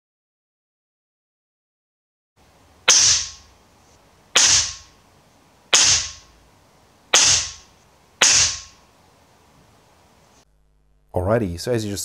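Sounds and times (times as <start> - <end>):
air rifle shots cracking: 2.9 - 3.5, 4.4 - 4.9, 5.7 - 6.3, 7.1 - 8.8.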